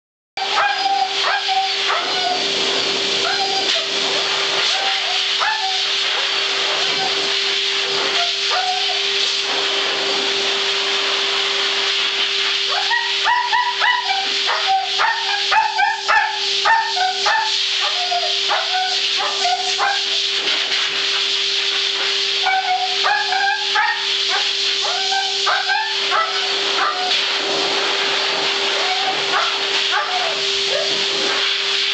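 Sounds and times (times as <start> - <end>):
husky howling: 0.4 - 2.4, 4.7 - 5.9, 12.7 - 20.1, 22.5 - 27.2, 28.8 - 31.0
blow dryer humming and hissing: 0.4 - 31.9.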